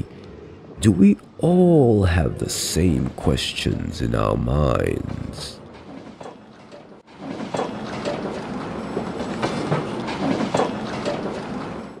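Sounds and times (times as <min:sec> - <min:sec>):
train rumbling on rails: 0:00.0 - 0:12.0
wheels clacking: 0:05.3 - 0:12.0.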